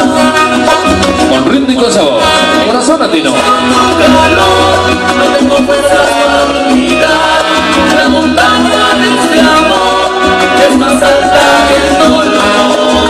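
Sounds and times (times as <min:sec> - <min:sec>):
latin dance music over loudspeakers: 0:00.0 - 0:13.0.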